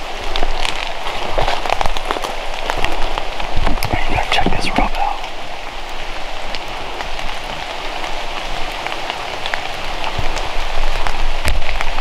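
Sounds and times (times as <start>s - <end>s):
rain patter: 0.0s - 12.0s.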